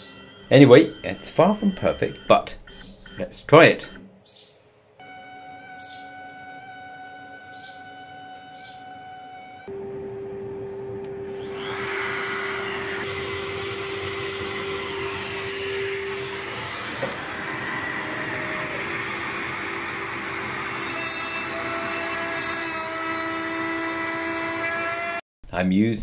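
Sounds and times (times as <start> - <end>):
router motor whining: 0.0 - 3.2, 5.0 - 25.2
dust extractor running: 5.0 - 23.1.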